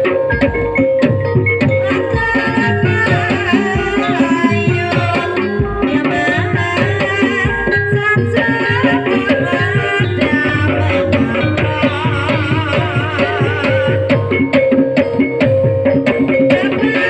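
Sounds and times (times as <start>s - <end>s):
wavering high melody: 8.6s - 14.5s
hand drum strokes: 8.6s - 15.5s
ringing bronze gongs: 9.6s - 14.1s.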